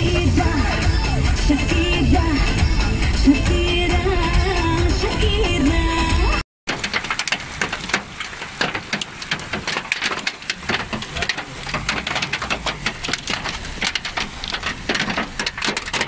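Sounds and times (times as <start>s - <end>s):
hail and rain pelting ground: 6.7s - 16.0s.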